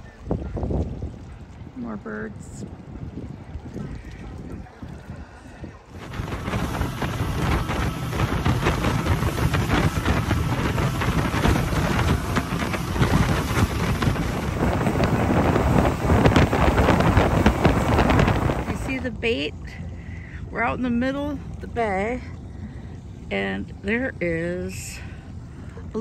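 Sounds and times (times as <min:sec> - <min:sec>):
water rushing past: 0:00.0 - 0:20.6
wind buffeting the microphone: 0:00.0 - 0:26.0.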